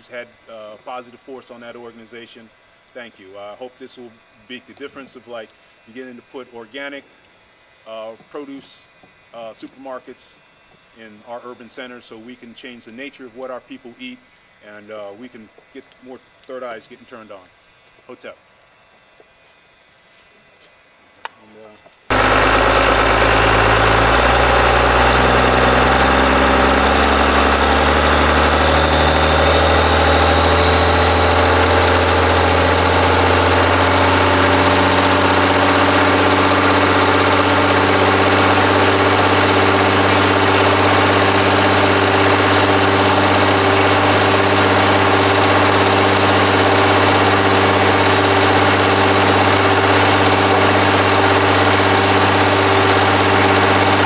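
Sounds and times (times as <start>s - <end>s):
pump engine running: 22.1s - 54.0s.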